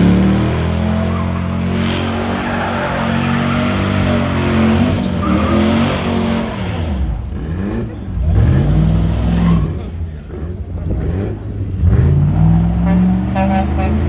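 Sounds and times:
tires squealing on pavement: 0.0s - 7.8s, 8.4s - 10.0s
truck engine revving: 0.0s - 14.0s.

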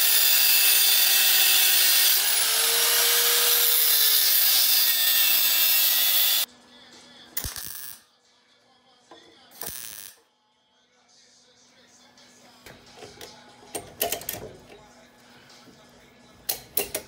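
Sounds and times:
angle grinder cutting metal: 0.0s - 6.5s.

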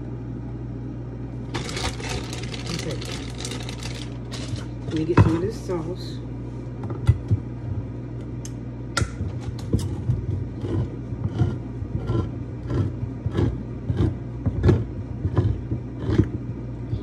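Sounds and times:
low hum: 0.0s - 17.0s
kitchen knocks and clatter: 4.9s - 5.5s.

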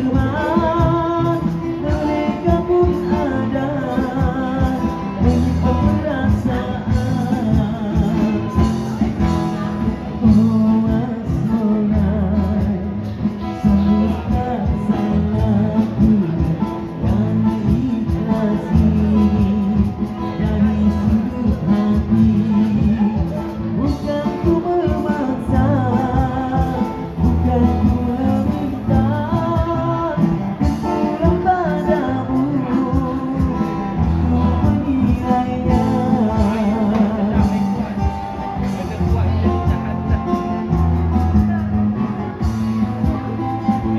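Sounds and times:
man and woman singing duet: 0.0s - 8.7s, 13.6s - 37.8s
bass: 0.0s - 43.9s
guitar: 0.0s - 43.9s
keyboard: 0.0s - 43.9s
percussion steady beat: 0.0s - 43.9s.

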